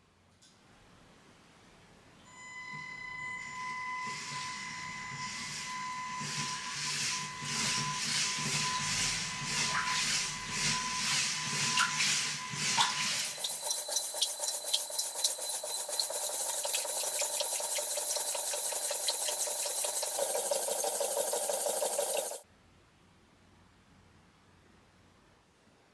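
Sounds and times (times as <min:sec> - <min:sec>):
toy motor and gears humming: 0:04.0 - 0:22.4
water sloshing in a tank: 0:04.1 - 0:22.4
fast ticking: 0:13.2 - 0:22.4.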